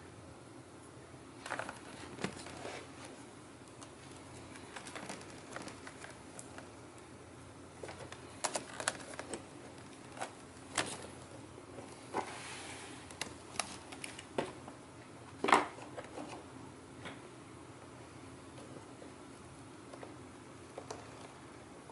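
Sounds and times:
plastic laptop casing clicks: 7.9 - 11.1.

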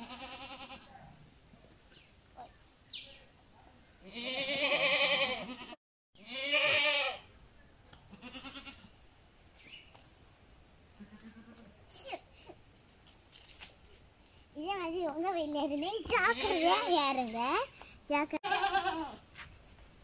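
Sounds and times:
goat bleating: 0.0 - 1.0, 4.0 - 7.2, 8.1 - 8.9, 11.0 - 11.8, 16.2 - 16.9, 18.4 - 19.2.

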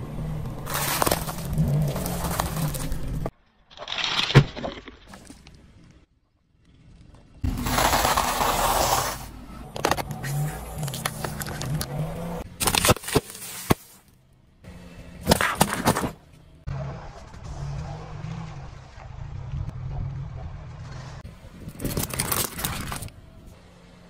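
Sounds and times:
tyres crushing objects: 0.6 - 5.5, 7.5 - 12.0, 15.2 - 16.2
low engine rumble: 16.2 - 24.0.

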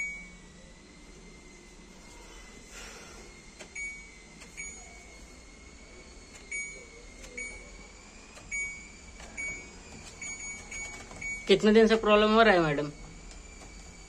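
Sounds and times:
washing machine short high beeps: 0.0 - 0.5, 3.8 - 5.1, 6.5 - 7.8, 8.4 - 11.7
faint steady high tone: 0.0 - 3.0, 3.7 - 13.0.

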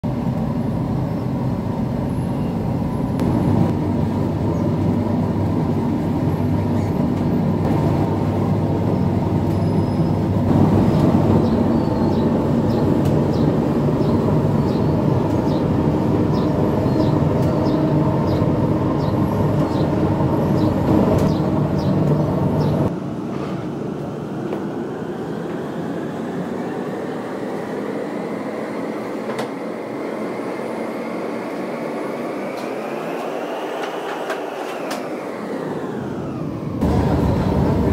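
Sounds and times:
hum with rising whine: 3.0 - 17.0, 35.2 - 37.9
oven machinery running: 35.4 - 37.9.

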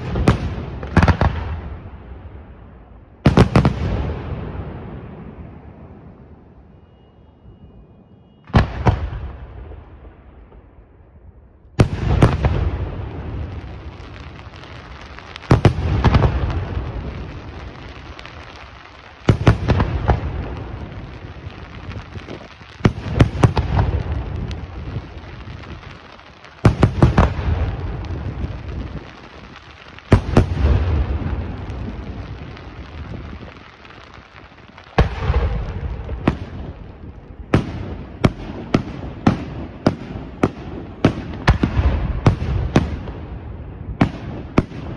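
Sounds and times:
sharp firework cracks: 0.0 - 1.8, 11.8 - 44.9.

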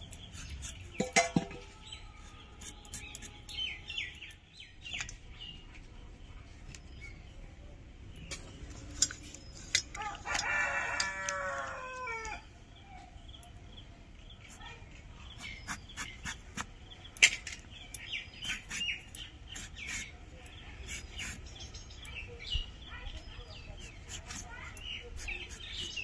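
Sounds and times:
rooster crowing: 10.0 - 12.4.

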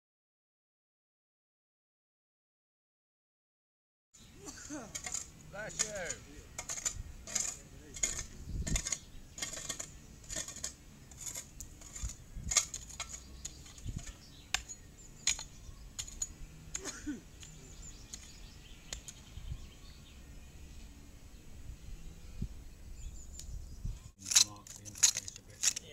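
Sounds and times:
shovel scraping in soil: 4.5 - 19.1, 24.2 - 25.9.

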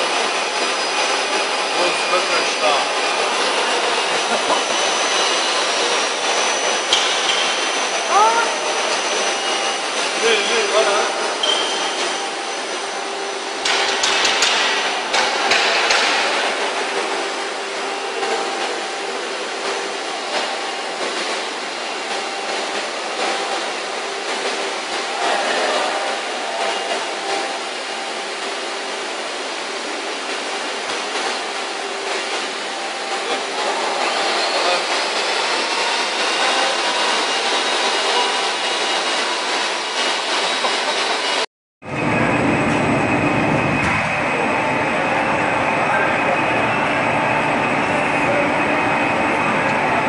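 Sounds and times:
machinery humming: 0.0 - 50.0
sharp knocks and clanks: 6.9 - 7.6, 13.6 - 16.8.

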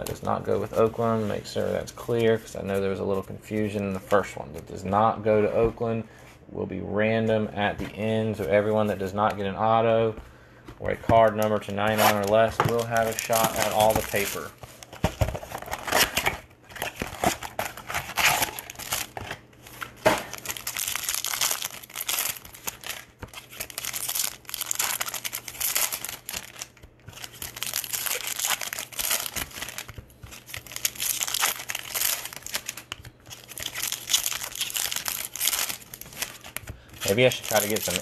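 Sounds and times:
foil wrappers crinkling and tearing: 11.2 - 38.0.

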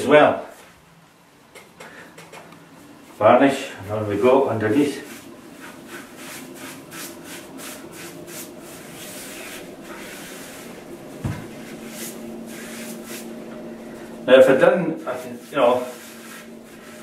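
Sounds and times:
paintbrush brushing wood: 4.6 - 17.0.

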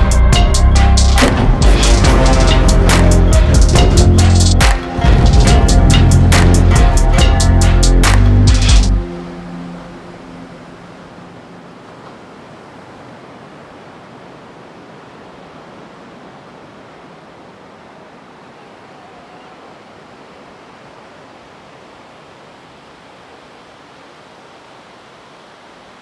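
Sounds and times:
sea waves washing on shore: 9.0 - 26.0.

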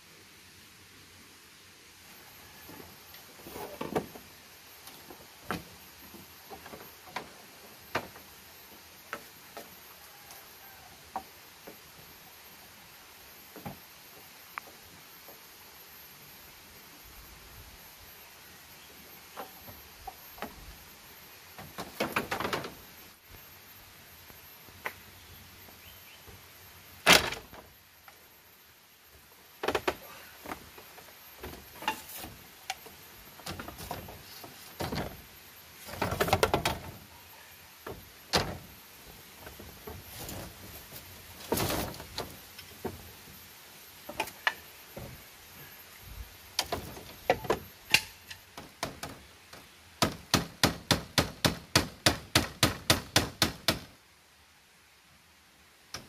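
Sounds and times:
bamboo poles knocking and clattering: 21.6 - 22.8, 29.6 - 37.1, 37.8 - 43.1, 46.6 - 53.9.

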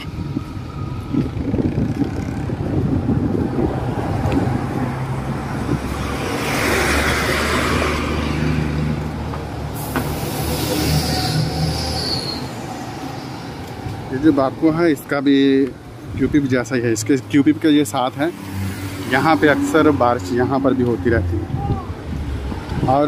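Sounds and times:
bus engine humming: 0.0 - 16.2
street traffic: 0.0 - 23.0
air brake hissing: 9.7 - 12.6.

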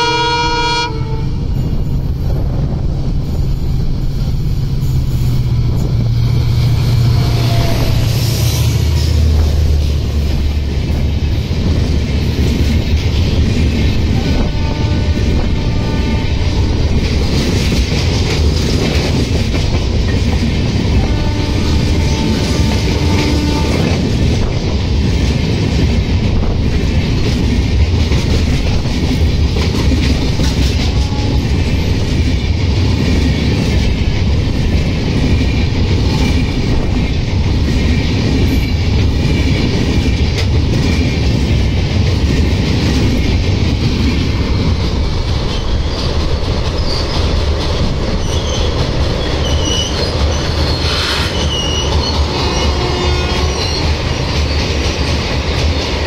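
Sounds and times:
train wheels rumbling on rails: 0.0 - 56.0
wheel squeal: 46.8 - 47.4, 48.1 - 54.7.

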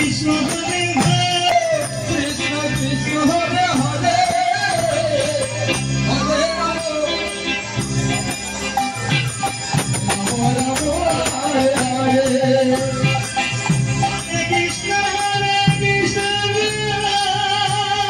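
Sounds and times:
devotional singing: 0.0 - 7.4, 10.1 - 13.4
hand drums: 0.0 - 18.0
jingling hand cymbals: 0.0 - 18.0.

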